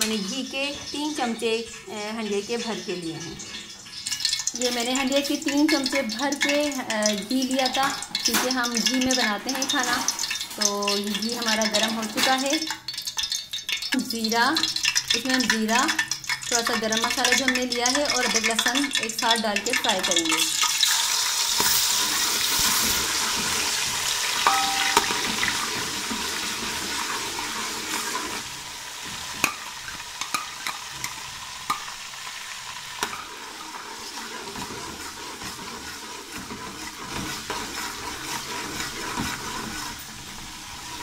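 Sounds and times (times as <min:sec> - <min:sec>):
spices sizzling in hot ghee: 0:00.0 - 0:41.0
spoon stirring and knocking pot: 0:24.5 - 0:25.9, 0:29.1 - 0:31.9, 0:33.0 - 0:40.0.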